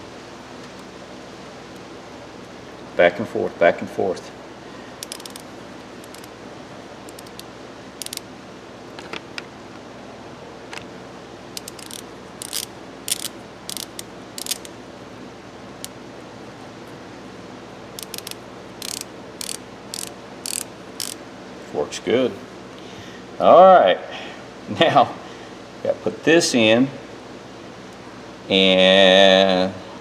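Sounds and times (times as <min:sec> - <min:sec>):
ratchet clicking: 0:05.0 - 0:06.3, 0:07.1 - 0:08.3, 0:11.5 - 0:14.8, 0:18.0 - 0:21.2.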